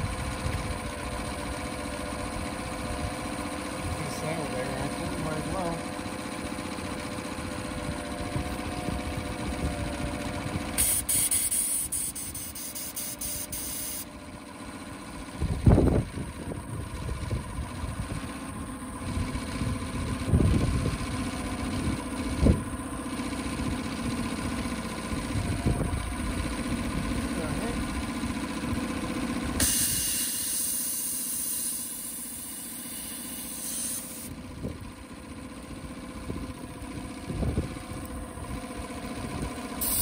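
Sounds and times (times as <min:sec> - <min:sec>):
outboard engine idling: 0:00.0 - 0:40.0
compressed air blow gun hiss: 0:10.8 - 0:14.1, 0:29.6 - 0:34.3, 0:39.8 - 0:40.0.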